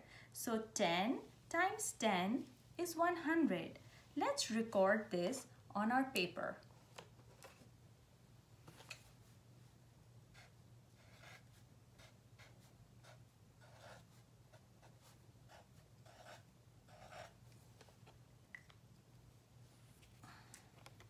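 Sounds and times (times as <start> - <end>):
low steady hum: 0.0 - 21.0
pen scratching on paper: 10.3 - 17.4.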